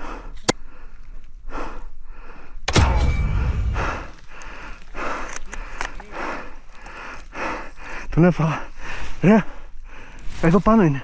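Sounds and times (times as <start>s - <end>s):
person breathing heavily: 0.0s - 10.3s
airsoft rifle shot crack: 2.7s - 4.1s
loud thump: 2.7s - 4.2s.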